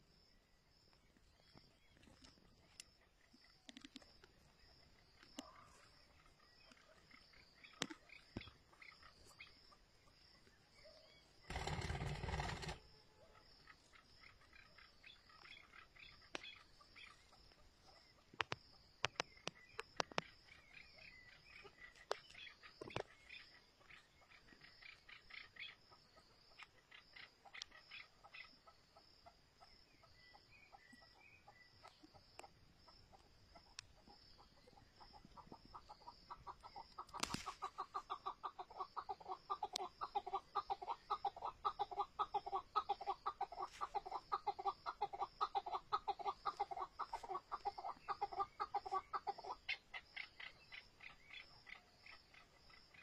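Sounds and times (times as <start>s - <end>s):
insects chirping: 0.0s - 53.0s
partridge clucking call: 34.6s - 53.0s.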